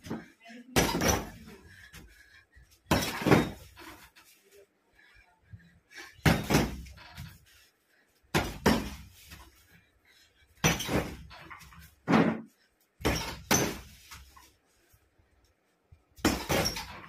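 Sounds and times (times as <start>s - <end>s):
gloves hitting punching bag: 6.2s - 7.0s, 8.3s - 9.1s.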